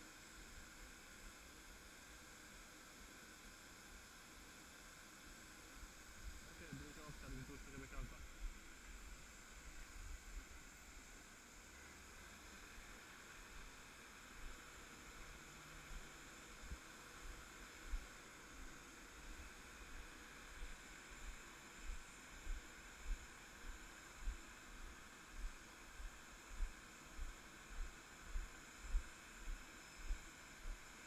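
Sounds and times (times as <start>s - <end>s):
steady hiss with low hum: 0.0s - 31.0s
soft low thumps: 21.8s - 30.8s.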